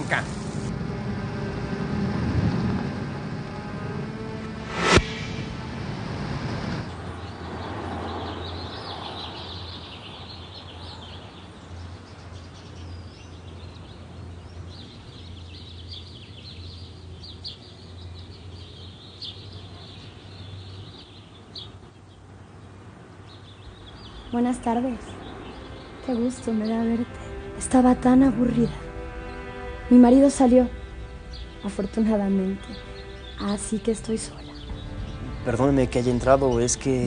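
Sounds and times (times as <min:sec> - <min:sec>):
low steady hum: 0:00.0 - 0:07.4
small birds chirping: 0:06.8 - 0:37.0.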